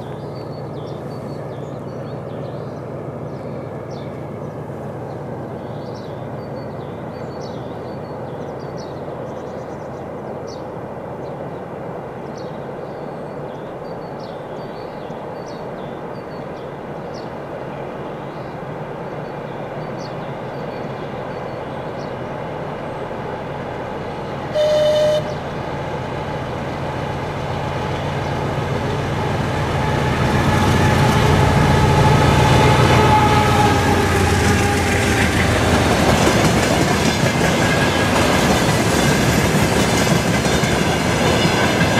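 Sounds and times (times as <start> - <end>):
diesel locomotive engine rumble: 0.0 - 41.9
locomotive whine: 19.1 - 41.9
train horn blast: 24.5 - 25.6, 29.1 - 35.7.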